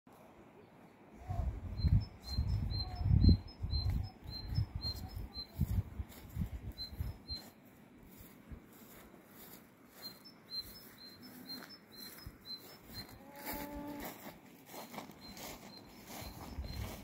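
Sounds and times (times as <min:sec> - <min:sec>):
small bird chirping: 0:01.3 - 0:07.6, 0:09.4 - 0:14.0, 0:14.8 - 0:17.0.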